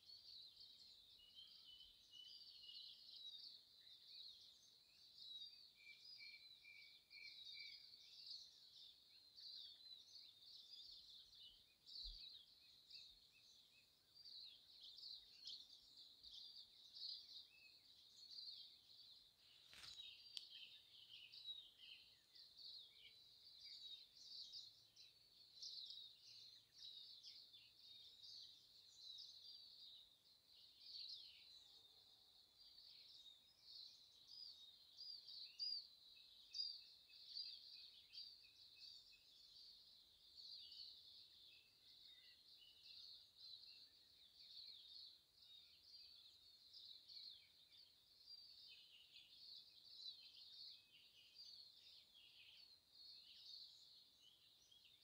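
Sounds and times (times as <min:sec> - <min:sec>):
small birds chirping: 0:00.0 - 0:55.0
faint click: 0:19.6 - 0:20.8.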